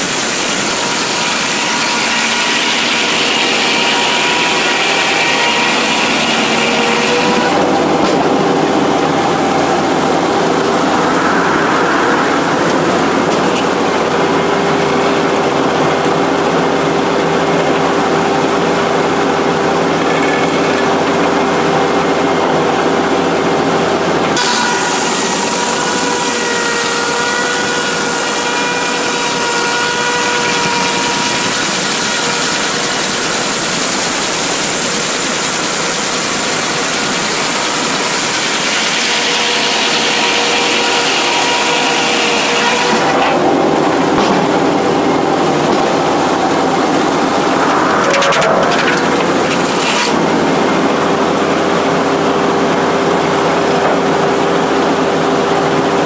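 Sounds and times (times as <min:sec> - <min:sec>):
saw blade cutting log: 0:00.0 - 0:08.6, 0:24.4 - 0:35.6, 0:45.6 - 0:50.2.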